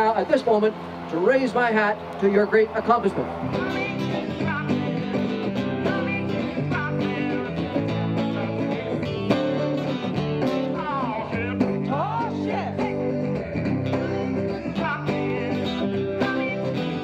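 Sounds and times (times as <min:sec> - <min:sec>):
electric guitar through amplifier: 0:00.0 - 0:17.0
strummed acoustic guitar: 0:00.0 - 0:17.0
person singing: 0:03.4 - 0:17.0.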